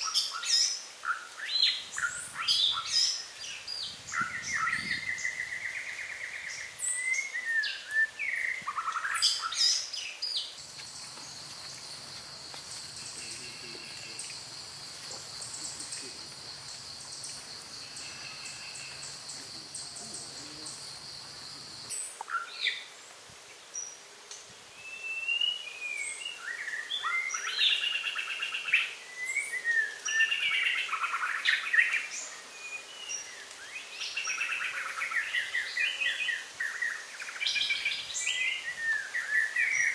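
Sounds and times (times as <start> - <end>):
birds chirping: 0.0 - 24.0
steady high hiss: 0.0 - 39.9.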